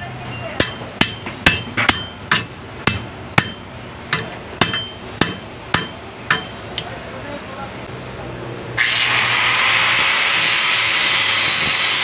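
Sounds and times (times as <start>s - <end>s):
hammer striking metal axle: 0.3s - 7.0s.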